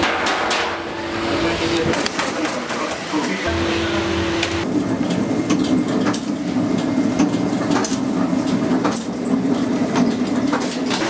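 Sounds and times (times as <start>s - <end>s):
machine clacks and knocks: 0.0s - 0.8s, 1.8s - 3.4s, 5.0s - 11.0s
motor hum: 0.8s - 4.8s.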